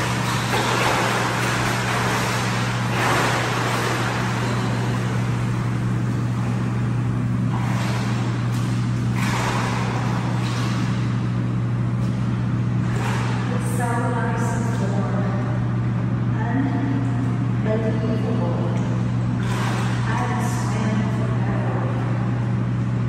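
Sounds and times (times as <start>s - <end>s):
swimmer splashing strokes: 0.0s - 14.1s, 19.3s - 20.8s
low machinery hum: 0.0s - 23.0s.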